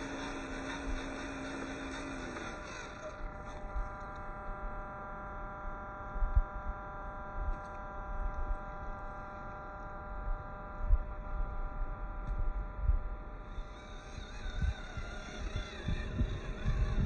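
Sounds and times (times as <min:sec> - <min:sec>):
electric motor whining: 0:00.0 - 0:17.0
low rumbles: 0:13.5 - 0:17.0.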